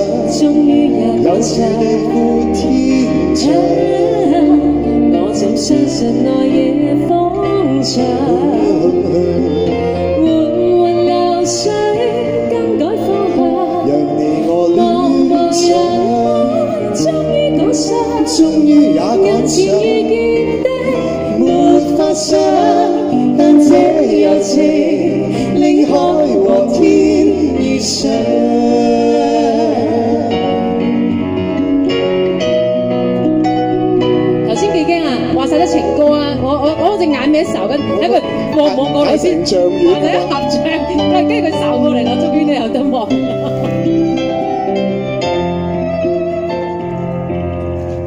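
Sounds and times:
man and woman singing duet: 0.0 - 31.4, 36.7 - 42.5
band accompaniment: 0.0 - 48.0.

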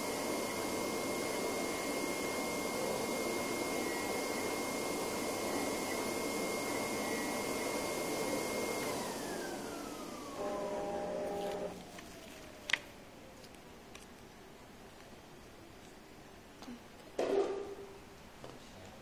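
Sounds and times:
cutting plotter machine whine: 0.0 - 12.4
steady electronic tones: 10.3 - 11.8.

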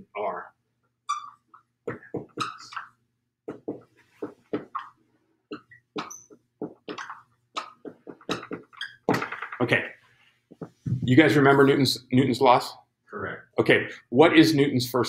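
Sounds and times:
marker squeaking on whiteboard: 1.0 - 11.0.

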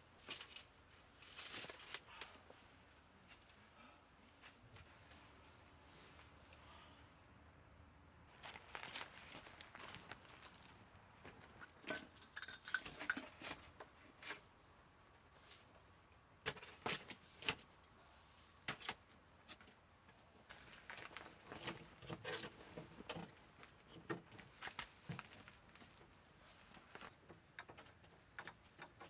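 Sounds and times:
metal camp table clinking: 11.8 - 13.7.

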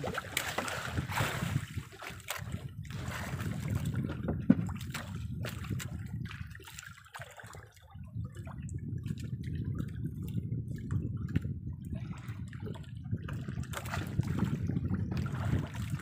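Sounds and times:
water lapping against boat: 0.0 - 16.0
knocks on boat: 3.9 - 5.6.

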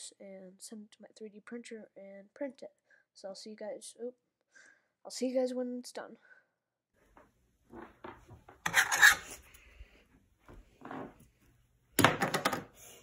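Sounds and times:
objects rubbing and scraping: 7.7 - 10.0.

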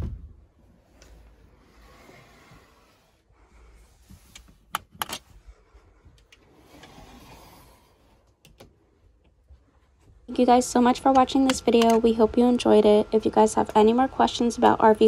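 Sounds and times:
hanging clothes rustling: 0.0 - 10.3.

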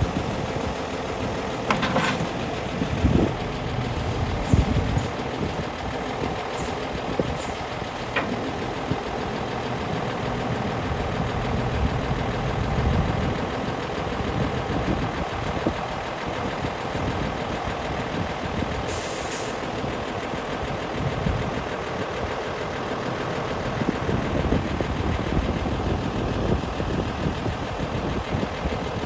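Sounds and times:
diesel engine idling: 0.0 - 29.0.

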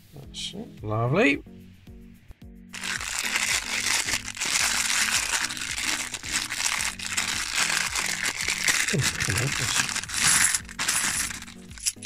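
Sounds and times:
background music: 0.0 - 12.0
plastic bag crinkling: 2.8 - 12.0.

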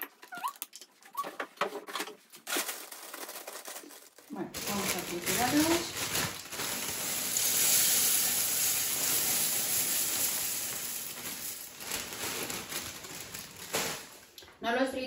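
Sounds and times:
plastic bag crinkling: 1.9 - 14.6
cereal pouring into glass bowl: 4.6 - 14.3.

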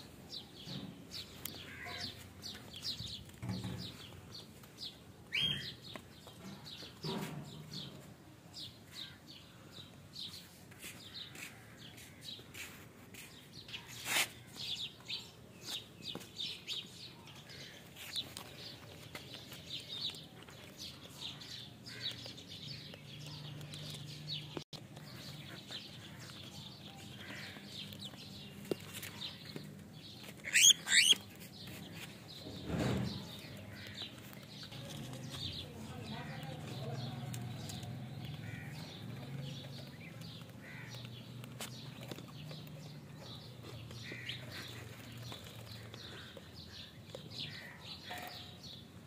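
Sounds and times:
cockatiels chirping: 5.3 - 5.8, 30.4 - 31.4
shrill bird calls: 30.4 - 31.3.

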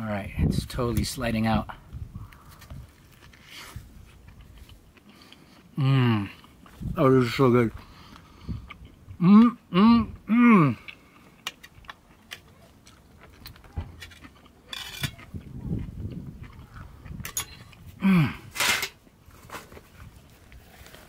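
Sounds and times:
person chewing: 2.2 - 7.0, 7.7 - 18.5
person breathing: 7.8 - 8.7
person humming mmm: 9.2 - 11.0, 18.0 - 18.5.

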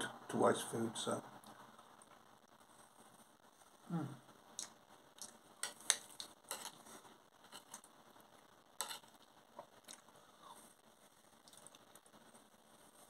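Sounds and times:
fork scraping on plate: 6.5 - 6.8, 8.8 - 9.1.

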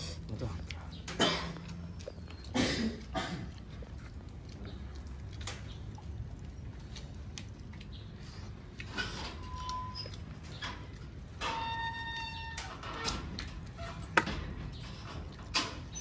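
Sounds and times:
chewing and crunching: 0.0 - 16.0.

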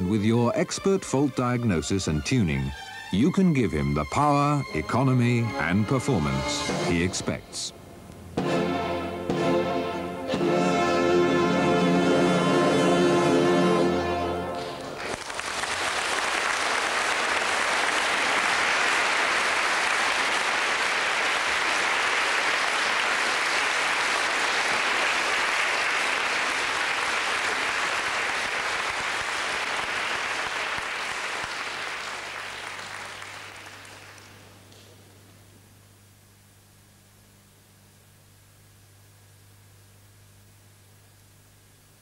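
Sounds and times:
orchestral chord: 3.4 - 7.6, 8.4 - 14.9
audience applause: 14.6 - 34.6.

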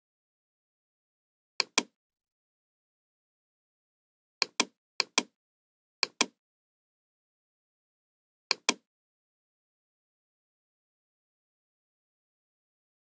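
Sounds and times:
computer mouse clicks: 1.6 - 1.9, 4.4 - 5.3, 6.0 - 6.4, 8.5 - 8.8.

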